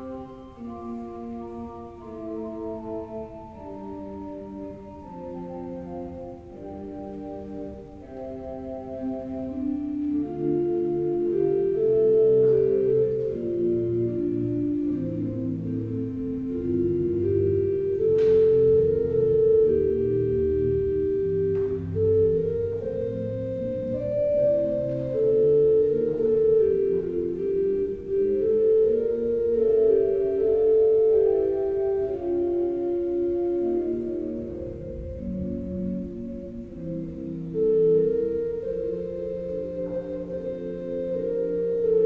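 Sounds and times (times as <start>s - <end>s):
church organ chords: 0.0s - 42.0s.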